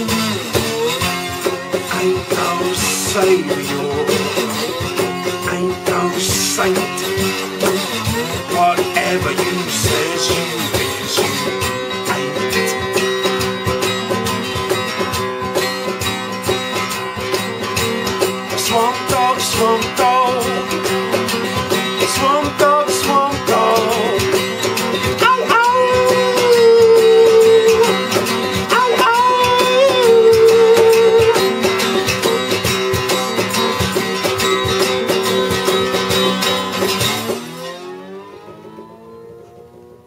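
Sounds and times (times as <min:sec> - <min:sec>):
wordless singing: 0:00.0 - 0:13.1, 0:18.5 - 0:32.2
acoustic guitar strumming: 0:00.0 - 0:40.0.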